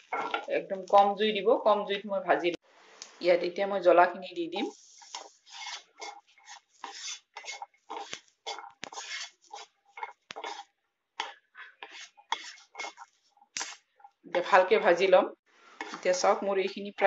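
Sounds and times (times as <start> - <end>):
wooden spatula scraping frying pan: 0.0 - 1.0, 4.6 - 13.8, 15.7 - 16.9.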